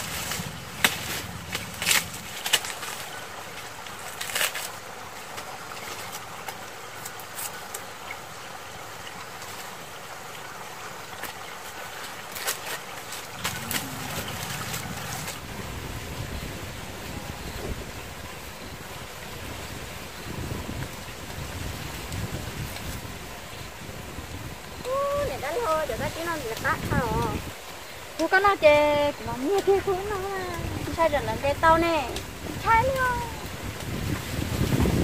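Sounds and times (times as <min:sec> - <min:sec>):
rustling in tall grass: 0:00.0 - 0:08.0, 0:11.2 - 0:35.0
wind rumbling on microphone: 0:13.2 - 0:35.0.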